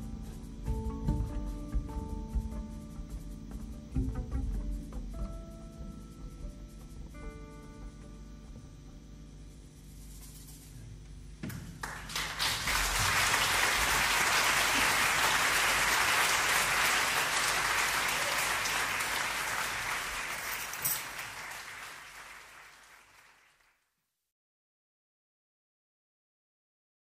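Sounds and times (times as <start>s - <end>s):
audience applause: 11.8s - 23.8s.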